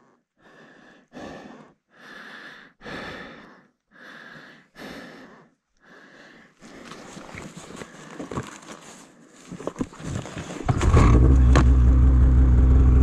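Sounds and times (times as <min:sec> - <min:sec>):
person breathing hard: 0:00.0 - 0:09.6.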